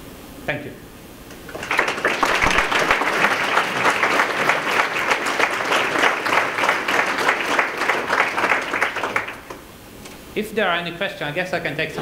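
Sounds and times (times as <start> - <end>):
audience applauding: 1.4 - 9.6.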